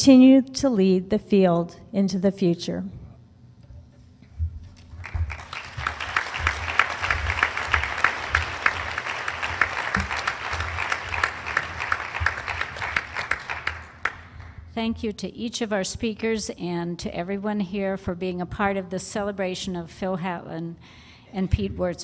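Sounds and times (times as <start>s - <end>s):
audience applauding: 5.0s - 14.5s.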